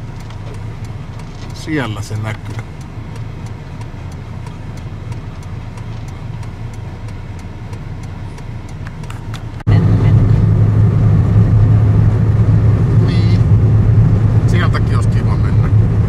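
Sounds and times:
faint regular ticking: 0.0 - 9.7
car engine and road noise: 0.0 - 16.0.

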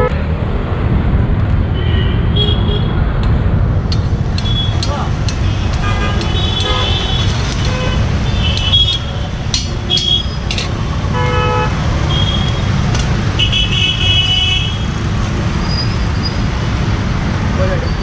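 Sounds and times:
street traffic rumble: 0.0 - 18.0
vehicle horns honking: 5.4 - 9.2, 11.1 - 12.8, 13.4 - 14.8.

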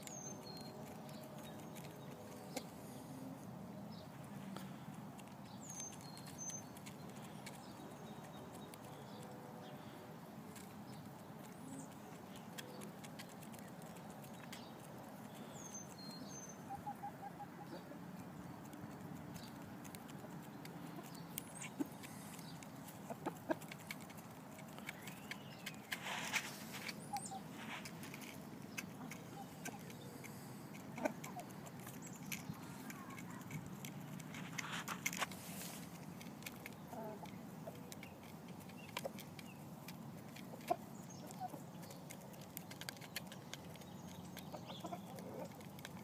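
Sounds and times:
beaks pecking grain from bowl: 0.0 - 46.0
chickens clucking: 16.5 - 46.0.

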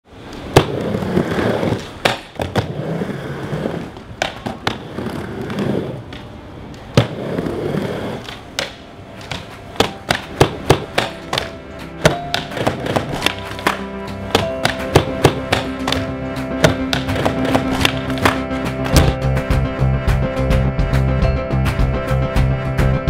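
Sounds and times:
skateboard wheels rolling on ramp: 0.2 - 19.2
skateboard clacking on coping: 0.3 - 19.0
music with tapping beat: 9.2 - 23.0.

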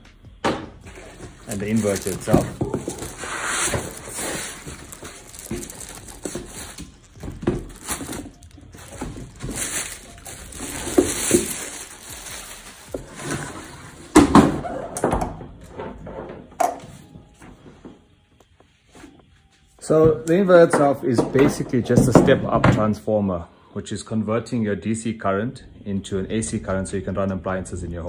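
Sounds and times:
cardboard and foam rubbing: 0.9 - 14.0
plastic bag rustling: 0.9 - 14.2.

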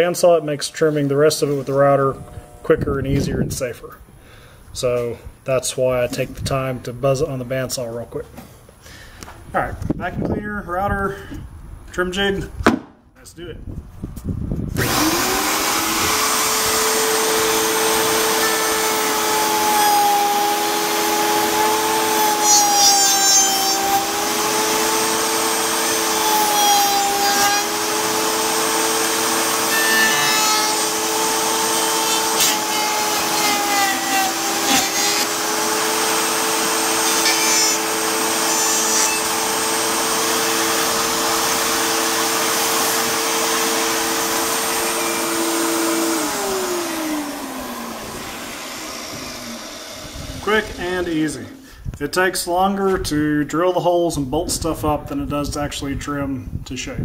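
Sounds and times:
router motor whine: 1.4 - 3.2, 14.7 - 51.6
shop vacuum motor whine: 14.7 - 51.6.

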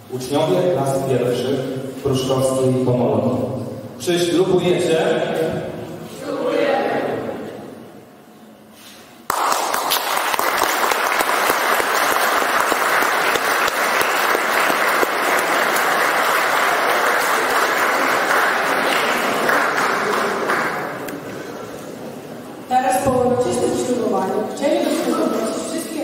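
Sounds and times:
audience applauding: 9.3 - 21.2.

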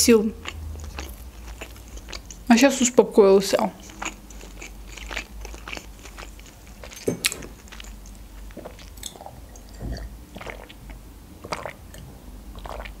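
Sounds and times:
chewing and wet mouth sounds: 0.0 - 13.0
sipping and swallowing: 3.8 - 13.0.

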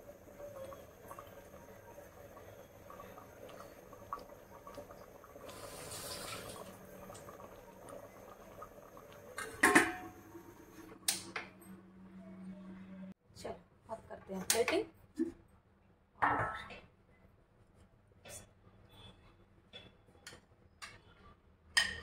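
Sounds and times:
water pouring hiss: 5.2 - 8.1
dishes clattering: 9.4 - 10.2.

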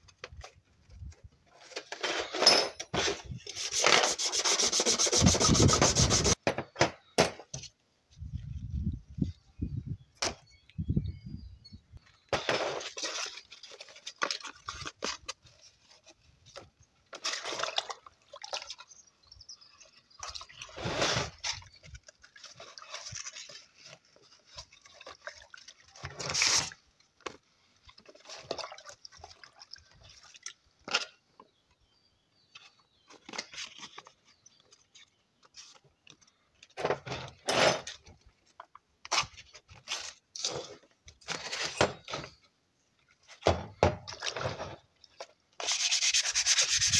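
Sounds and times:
water splashing in plastic bucket: 17.1 - 19.0, 20.1 - 26.8, 27.9 - 30.6, 44.0 - 44.6.

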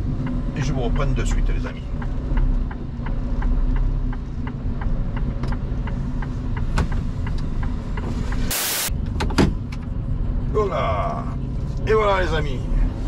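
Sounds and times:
hazard lights ticking: 0.1 - 8.4
short loud hiss: 8.5 - 8.9.

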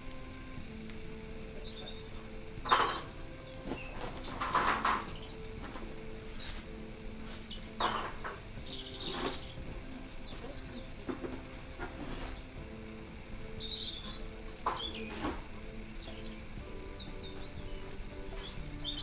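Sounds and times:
birds chirping: 0.0 - 19.0
faint steady hum: 0.0 - 19.0.

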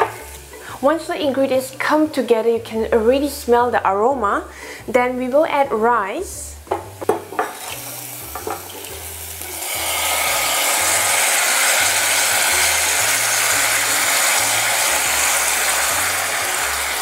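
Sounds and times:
rice sizzling in hot oil: 0.0 - 2.3, 7.0 - 17.0.

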